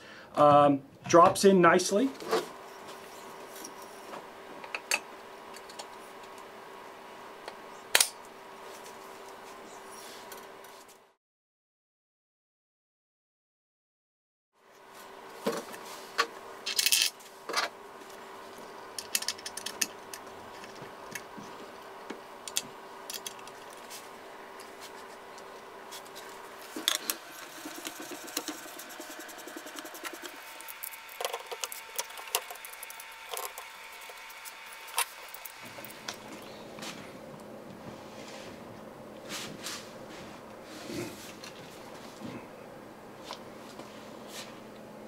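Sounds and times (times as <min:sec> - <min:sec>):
faint steady hum: 0:14.6 - 0:45.0.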